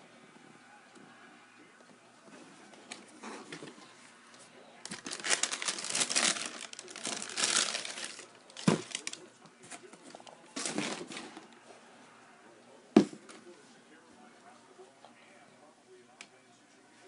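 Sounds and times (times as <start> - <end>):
tissue paper crinkling: 4.9 - 9.2.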